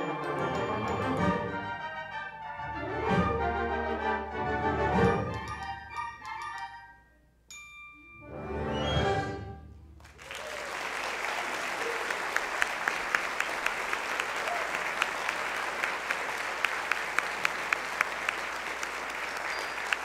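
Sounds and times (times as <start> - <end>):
music: 0.0 - 10.0
audience applauding: 10.0 - 20.0.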